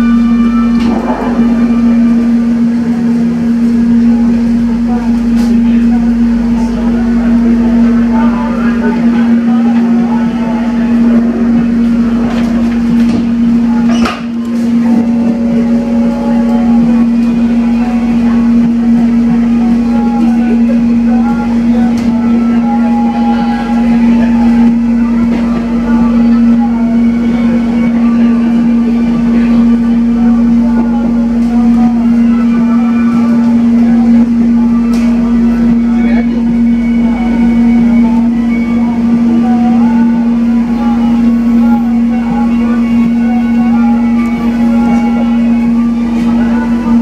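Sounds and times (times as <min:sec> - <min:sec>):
faint voices: 0:00.0 - 0:47.0
train cabin rumble and hum: 0:00.0 - 0:47.0.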